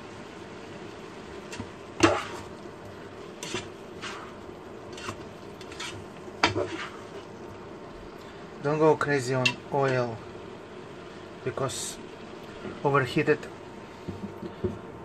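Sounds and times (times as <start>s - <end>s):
steady low hum: 0.0s - 15.0s
spatula scraping a pot: 1.6s - 2.5s, 3.3s - 7.3s.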